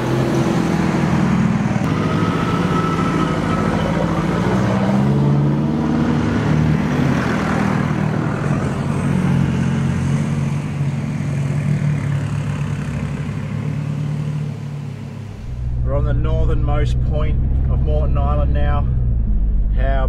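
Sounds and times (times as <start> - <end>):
vehicle engine running: 14.8 - 20.0.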